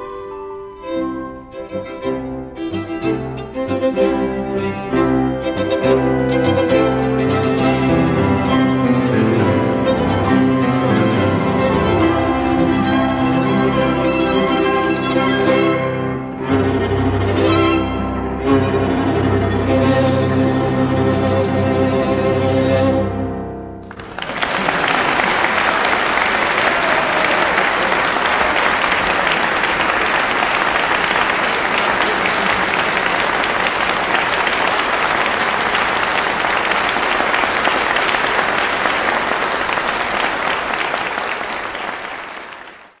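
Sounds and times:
audience applause: 9.8s - 15.6s, 23.8s - 43.0s.

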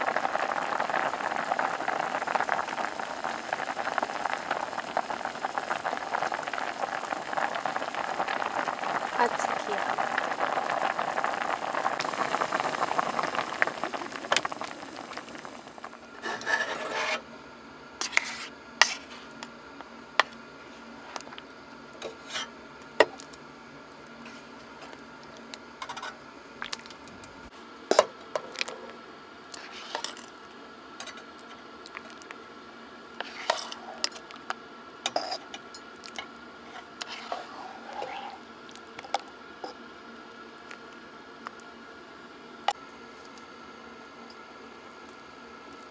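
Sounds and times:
steady hiss: 0.0s - 16.4s.

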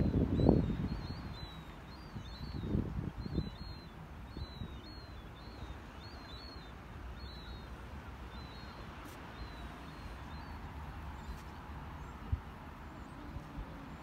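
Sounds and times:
wind noise: 0.0s - 4.8s
birds chirping: 0.0s - 14.0s.

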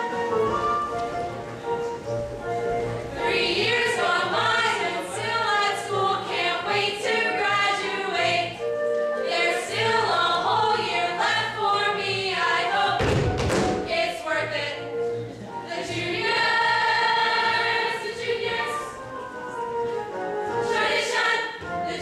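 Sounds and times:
chorus singing a show tune: 3.1s - 13.0s, 15.6s - 19.8s, 20.5s - 22.0s.

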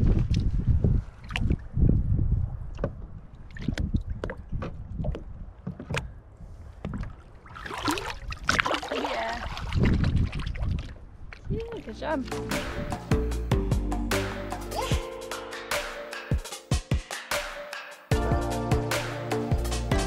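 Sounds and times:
wind rumble on microphone: 0.0s - 7.4s, 9.2s - 13.1s
water lapping and splashing against boat: 0.2s - 1.8s, 2.5s - 12.6s.

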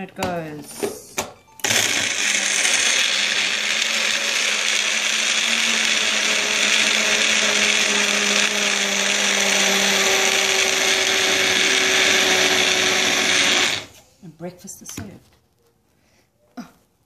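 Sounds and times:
blender motor whirring: 1.6s - 14.0s.

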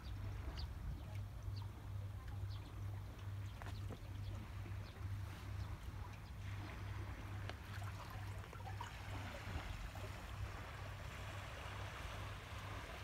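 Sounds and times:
low steady rumble: 0.0s - 13.0s
water lapping and trickling: 0.0s - 13.0s.

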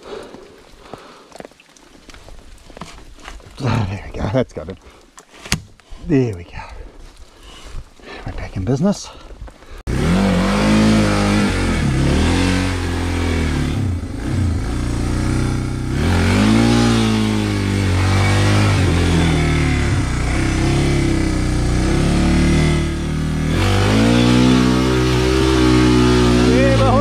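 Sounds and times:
motorcycle engine revving: 9.9s - 27.0s.

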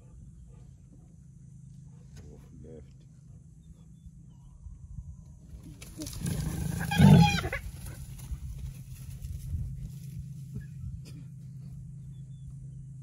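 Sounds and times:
lion snarling growl: 6.0s - 8.0s.

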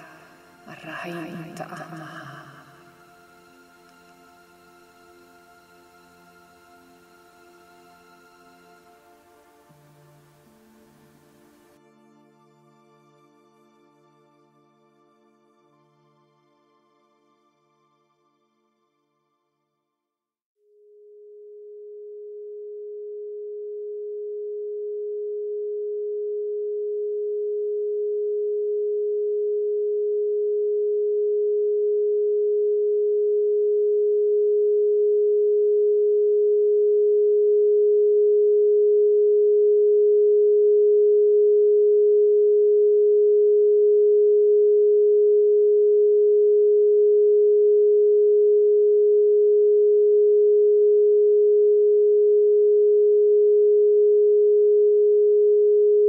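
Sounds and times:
steady sine tone: 0.0s - 11.8s, 20.6s - 56.0s.

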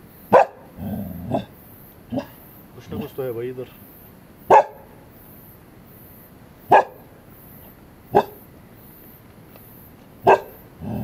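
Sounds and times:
dog barking sharply: 0.3s - 0.6s, 4.5s - 4.9s, 6.7s - 7.0s, 10.2s - 10.6s.

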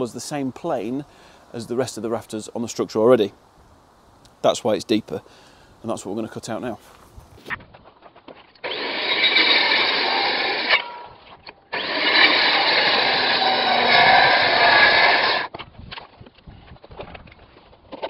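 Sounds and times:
circular saw cutting timber: 8.6s - 15.5s.

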